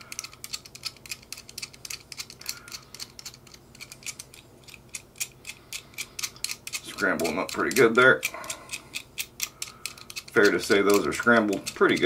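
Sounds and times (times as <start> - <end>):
padlock wheels clicking: 0.0 - 12.0.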